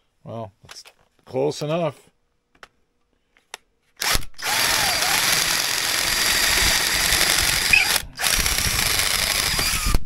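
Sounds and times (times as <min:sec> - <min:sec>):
cordless drill drilling metal: 0:04.0 - 0:10.0.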